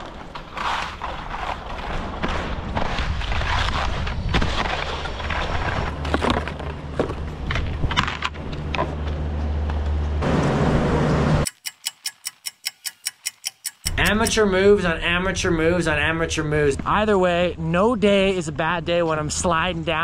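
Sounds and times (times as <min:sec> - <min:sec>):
skis scraping over icy snow: 0:00.0 - 0:06.8
rapid even ticks: 0:11.5 - 0:14.4.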